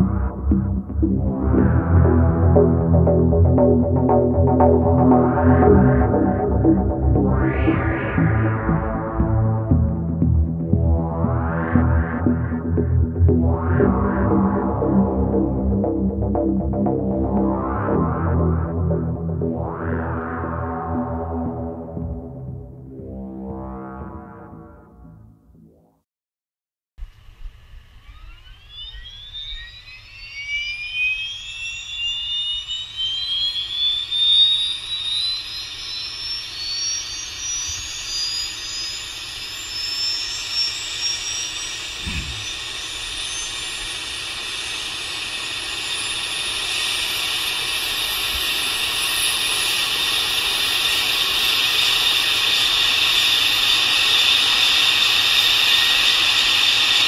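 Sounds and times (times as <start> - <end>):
turbine engine whine: 27.2 - 57.0.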